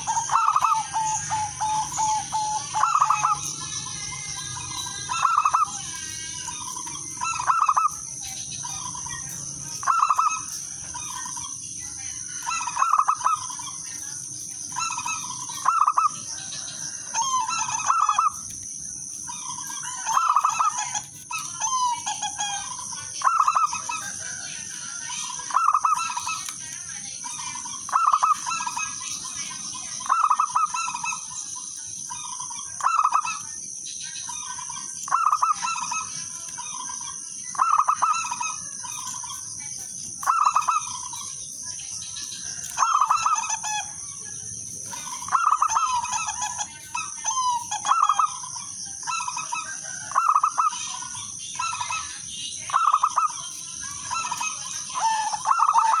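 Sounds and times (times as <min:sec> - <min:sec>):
dove cooing: 0:00.0 - 0:08.0, 0:09.8 - 0:13.8, 0:14.7 - 0:18.6, 0:19.3 - 0:26.5, 0:27.4 - 0:29.4, 0:30.0 - 0:31.3, 0:34.5 - 0:36.3, 0:37.5 - 0:39.4, 0:40.2 - 0:41.3, 0:42.5 - 0:43.9, 0:44.8 - 0:52.1, 0:52.7 - 0:56.0.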